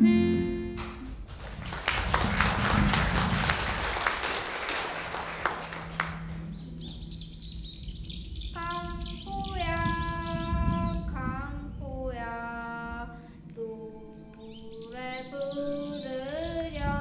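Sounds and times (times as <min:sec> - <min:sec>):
audience applauding: 0:00.8 - 0:06.9.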